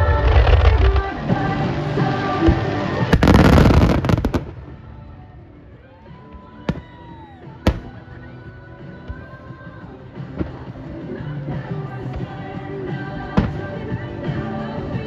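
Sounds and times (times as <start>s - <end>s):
fireworks crackling: 0.0s - 5.2s
music: 0.0s - 15.0s
firework bangs: 2.4s - 4.8s.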